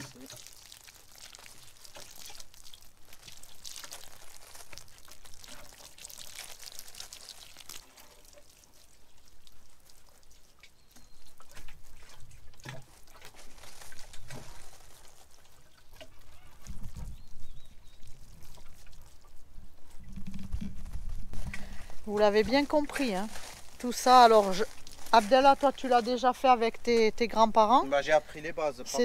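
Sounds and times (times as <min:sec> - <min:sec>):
water spattering onto soil: 0:00.0 - 0:10.7, 0:21.3 - 0:27.6.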